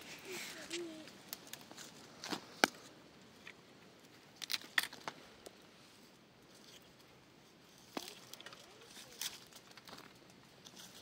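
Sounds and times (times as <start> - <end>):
stems snapping and crackling: 0.6 - 2.9, 4.4 - 5.6, 7.9 - 11.0.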